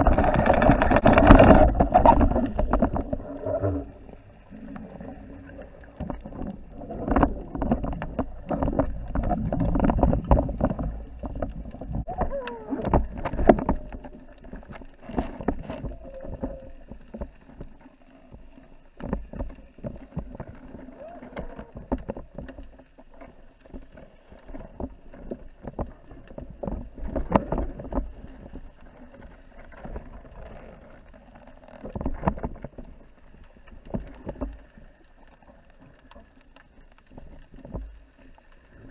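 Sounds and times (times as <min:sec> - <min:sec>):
underwater knocks and clicks: 0:00.0 - 0:38.9
underwater water rushing: 0:00.0 - 0:38.9.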